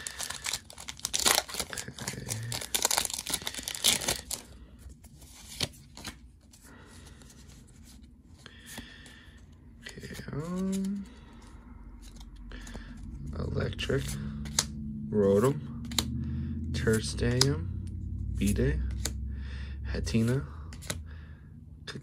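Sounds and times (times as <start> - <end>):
foil wrapper tearing and crinkling: 0.0 - 4.5
person's voice: 9.9 - 11.1.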